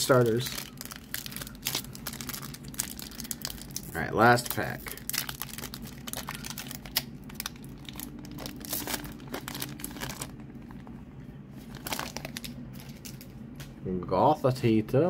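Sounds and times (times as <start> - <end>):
foil wrapper crinkling: 0.0 - 10.9, 11.6 - 13.4
card handling noises: 0.0 - 13.8.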